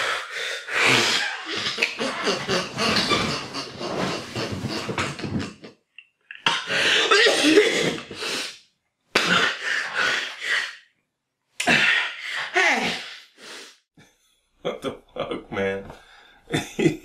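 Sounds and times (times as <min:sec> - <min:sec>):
man laughing hard: 0:01.0 - 0:05.7, 0:16.5 - 0:17.0.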